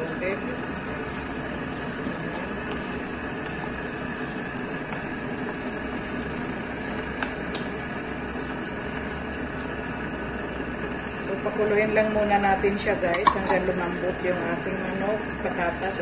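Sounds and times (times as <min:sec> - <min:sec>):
wooden spatula stirring: 0:00.0 - 0:09.8
stew sizzling in a pan: 0:00.0 - 0:16.0
spatula tapping pan: 0:13.1 - 0:13.6.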